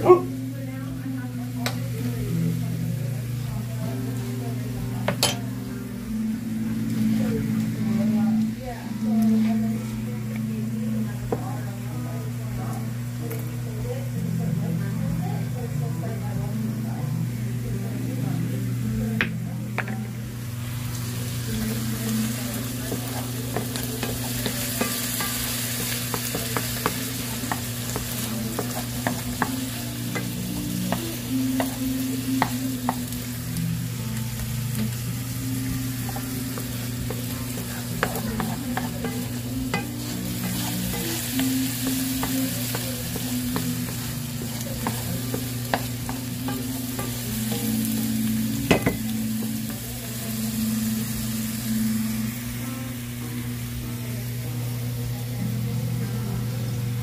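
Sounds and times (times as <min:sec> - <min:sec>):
carrots sizzling in frying pan: 0:00.0 - 0:57.0
wooden spoon stirring: 0:36.0 - 0:48.2.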